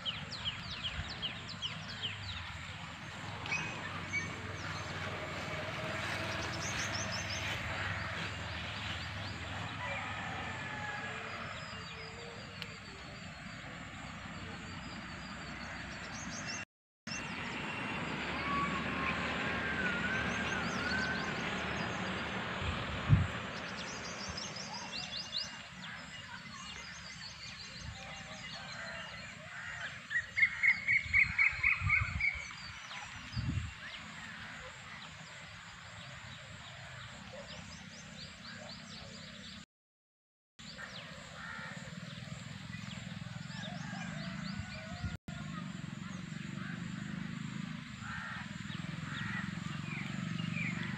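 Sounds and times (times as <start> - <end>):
birds chirping and whistling: 3.5 - 4.8.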